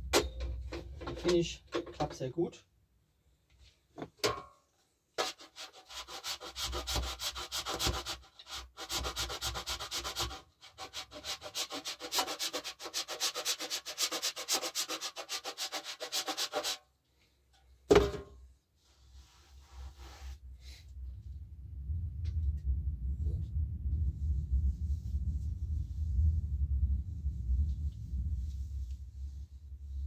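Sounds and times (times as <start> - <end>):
wax rasping on grater: 5.2 - 16.8.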